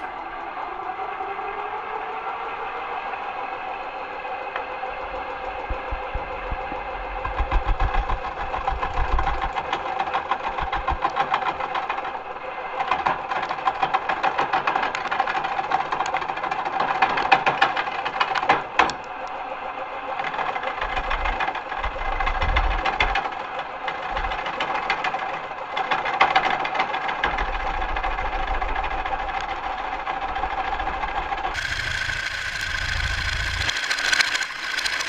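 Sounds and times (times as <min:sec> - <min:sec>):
wood lathe motor whine: 0:00.0 - 0:11.2, 0:31.4 - 0:35.0.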